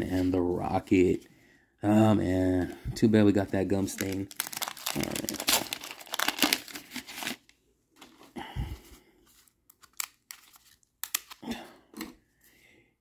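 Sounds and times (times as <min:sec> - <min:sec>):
wax paper pack tearing: 0:03.8 - 0:07.4
cards crackling and clicking: 0:03.8 - 0:07.5, 0:09.6 - 0:11.4.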